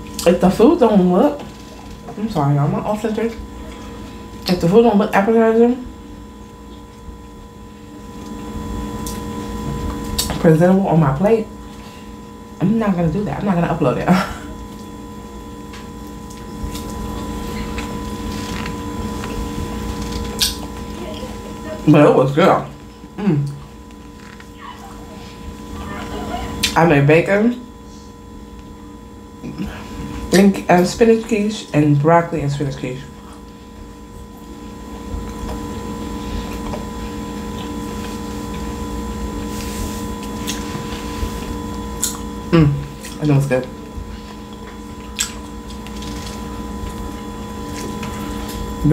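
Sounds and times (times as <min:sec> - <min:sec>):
steady hum: 0:00.0 - 0:48.9
person chewing: 0:15.7 - 0:21.0, 0:33.1 - 0:48.8.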